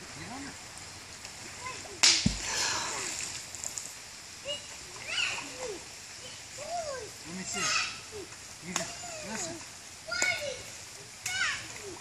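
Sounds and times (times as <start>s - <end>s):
child splashing into water: 1.4s - 3.8s.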